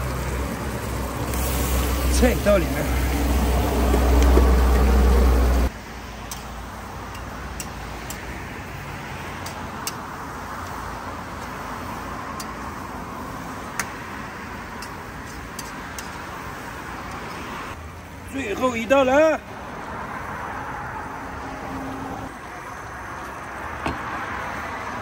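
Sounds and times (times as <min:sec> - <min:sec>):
vegetables sizzling in oil: 0:00.0 - 0:05.7.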